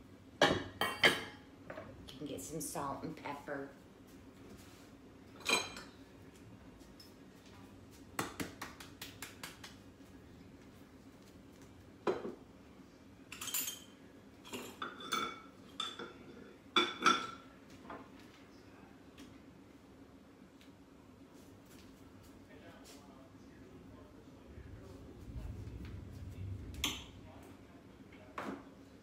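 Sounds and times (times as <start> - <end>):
dishes and utensils clinking: 0.4 - 1.9, 5.3 - 6.0, 13.3 - 18.0.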